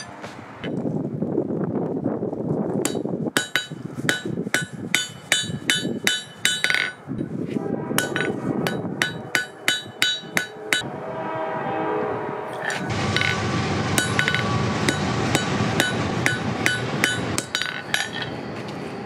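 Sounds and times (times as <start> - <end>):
hammer striking metal on anvil: 2.8 - 7.0, 8.0 - 10.9, 12.5 - 13.4, 14.0 - 18.3
low rushing noise: 7.1 - 19.0.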